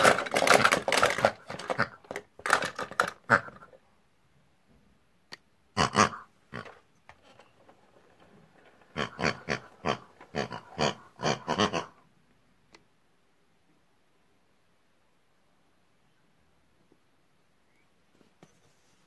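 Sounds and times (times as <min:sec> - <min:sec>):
pig oinks and grunts: 0:05.8 - 0:06.7, 0:08.9 - 0:12.0.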